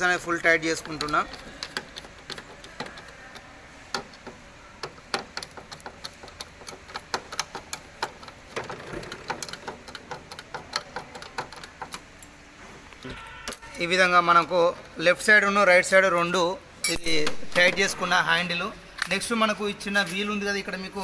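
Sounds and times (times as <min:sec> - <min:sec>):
screwdriver clicking and ticking: 0:00.1 - 0:12.3.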